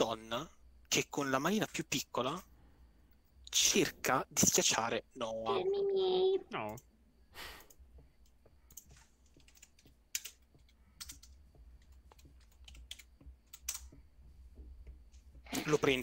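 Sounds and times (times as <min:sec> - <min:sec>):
low background hum: 0:00.0 - 0:16.0
computer keyboard typing: 0:07.6 - 0:14.0.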